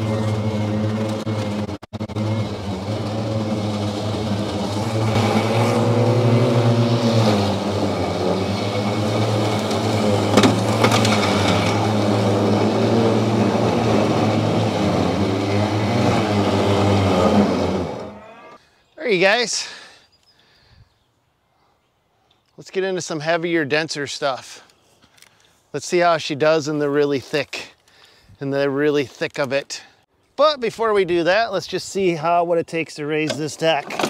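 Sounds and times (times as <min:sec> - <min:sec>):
riding mower motor whine: 0:00.0 - 0:18.6.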